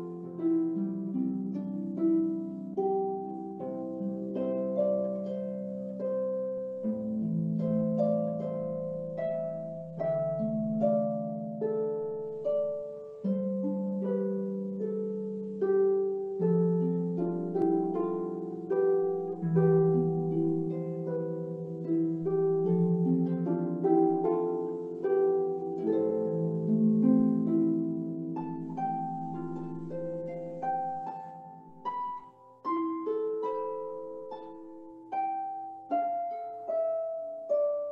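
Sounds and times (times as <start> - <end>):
harp melody: 0.0 - 37.9.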